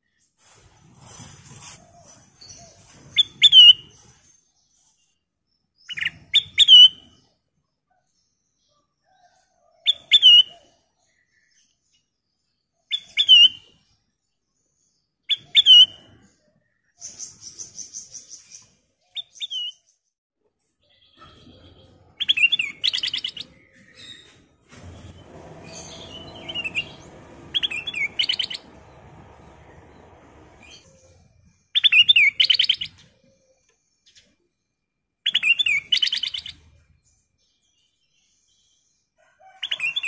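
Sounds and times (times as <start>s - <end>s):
low background rumble: 24.8s - 31.5s.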